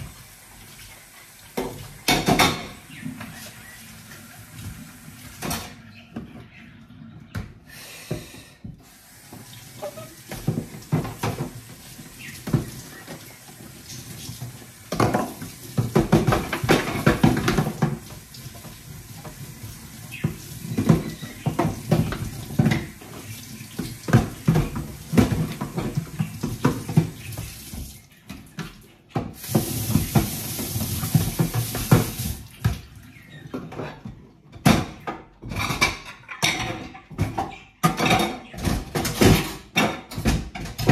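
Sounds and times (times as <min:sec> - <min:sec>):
tap water running and splashing: 0:00.0 - 0:06.6, 0:08.1 - 0:40.9
plates and dish rack clattering: 0:01.7 - 0:03.4, 0:33.5 - 0:40.9.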